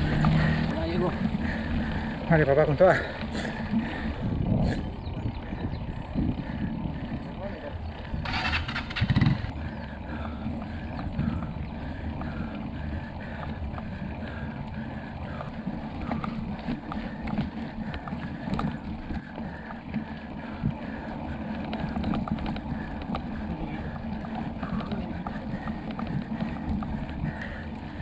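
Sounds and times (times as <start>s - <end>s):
bicycle tyres rumbling on concrete: 0.0s - 28.0s
wind on microphone: 3.4s - 12.6s
scattered ticks: 10.2s - 28.0s.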